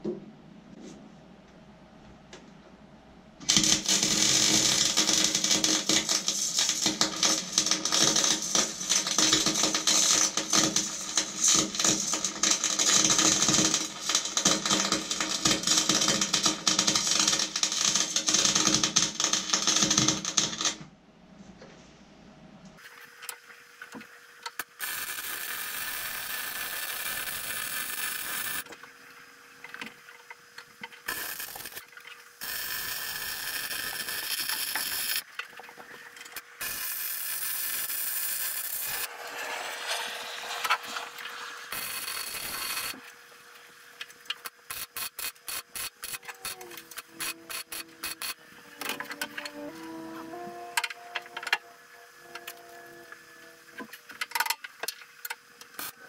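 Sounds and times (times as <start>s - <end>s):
metal tool hissing: 36.6s - 43.0s.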